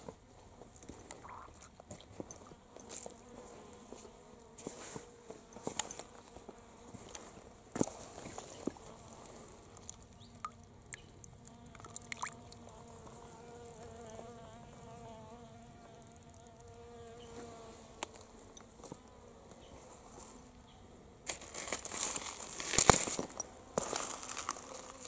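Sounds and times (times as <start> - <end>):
insect buzzing: 0.5 - 25.0
gravel crunching: 21.3 - 25.0.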